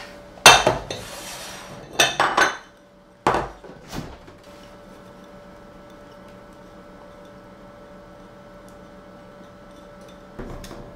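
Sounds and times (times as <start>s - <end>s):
dishes clinking on steel worktop: 0.4s - 1.1s, 1.8s - 3.7s.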